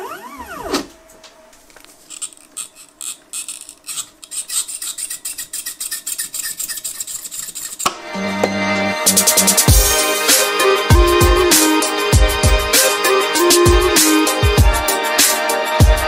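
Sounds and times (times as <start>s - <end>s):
scraping and rubbing on plastic: 1.9s - 8.0s
electronic music: 8.1s - 16.0s.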